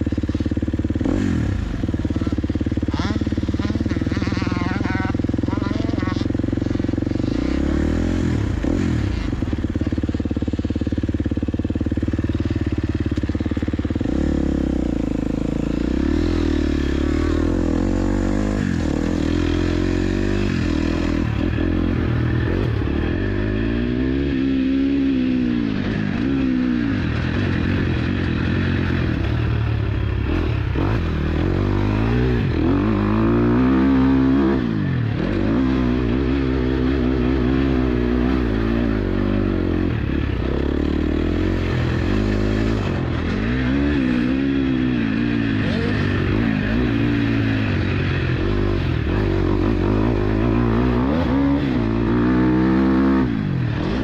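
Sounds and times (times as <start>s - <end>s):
motorcycle engine revving: 0.0s - 54.0s.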